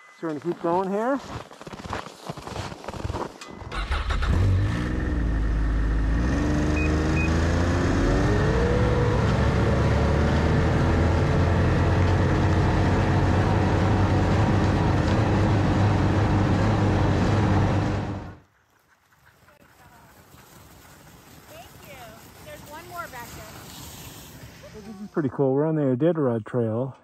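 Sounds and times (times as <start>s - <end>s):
snowmobile engine accelerating: 3.7s - 18.4s.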